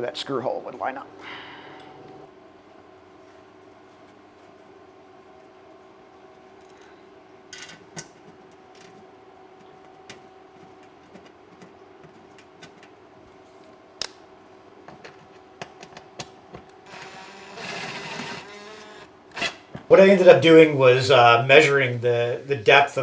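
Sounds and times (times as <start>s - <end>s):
cordless drill driving screw: 16.8s - 19.6s.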